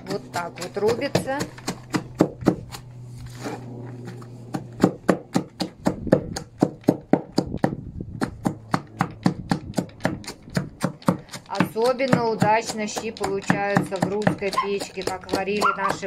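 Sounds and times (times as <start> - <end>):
hand chopper chopping cabbage: 0.0 - 16.0.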